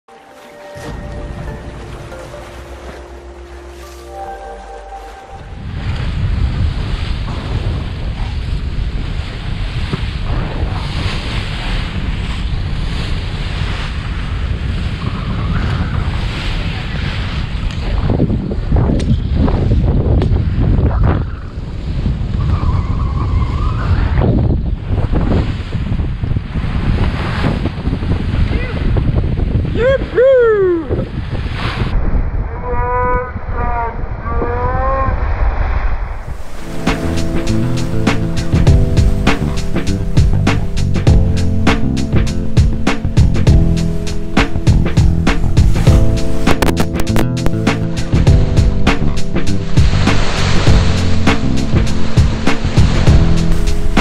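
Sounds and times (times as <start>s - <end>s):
music with held notes: 0.1s - 5.7s, 36.6s - 54.0s
water rushing past hull: 0.1s - 30.3s, 35.0s - 54.0s
wind buffeting microphone: 5.3s - 54.0s
person whooping: 29.8s - 31.1s.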